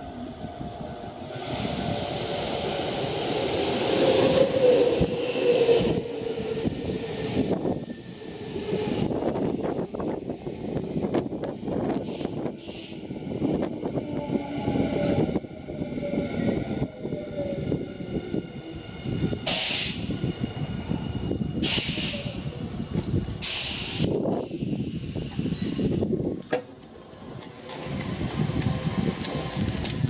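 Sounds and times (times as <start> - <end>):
electric train rumbling on rails: 0.0 - 30.0
compressed air hiss: 19.5 - 20.1, 21.6 - 22.4, 23.4 - 24.8.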